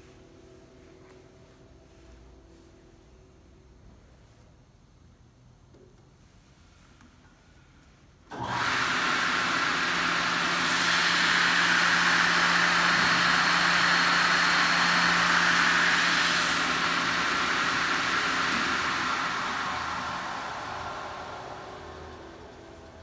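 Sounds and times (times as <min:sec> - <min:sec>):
circular saw running: 0:08.3 - 0:23.0.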